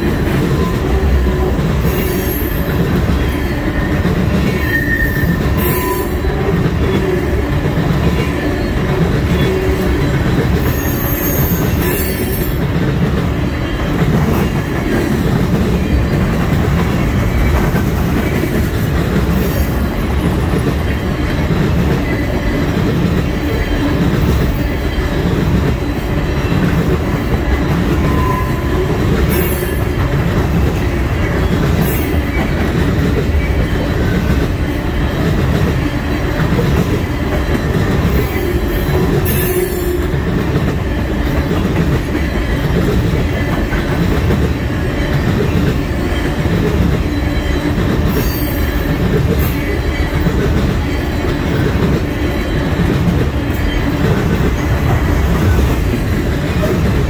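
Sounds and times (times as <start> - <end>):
rhythmic clickety-clack: 0.0 - 57.0
train wheels rumbling on track: 0.0 - 57.0
high-pitched wheel squeal: 4.5 - 7.2, 8.2 - 12.6, 28.0 - 29.8.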